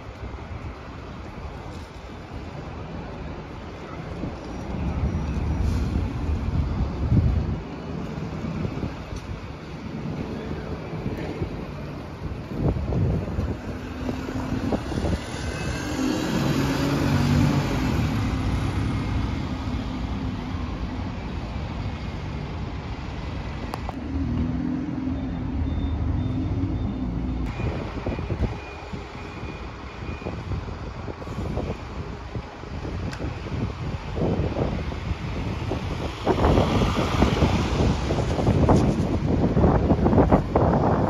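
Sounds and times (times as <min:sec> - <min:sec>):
second bus engine: 0:00.0 - 0:41.0
diesel bus pulling away: 0:01.5 - 0:41.0
wind on microphone: 0:04.1 - 0:20.5, 0:27.5 - 0:41.0.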